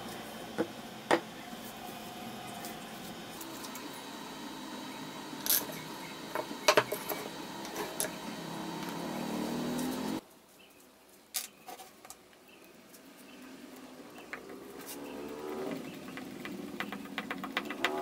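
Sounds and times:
steady background hum: 0:00.0 - 0:10.7
wooden boards knocking on workbench: 0:00.6 - 0:01.3.

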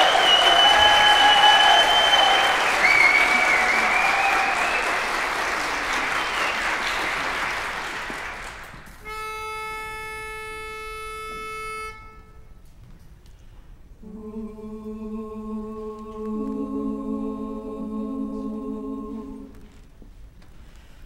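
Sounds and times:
audience applause: 0:00.0 - 0:09.0.

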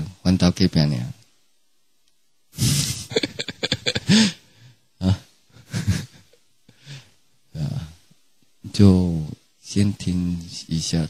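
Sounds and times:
man making breathy vocal sounds: 0:02.6 - 0:04.4.

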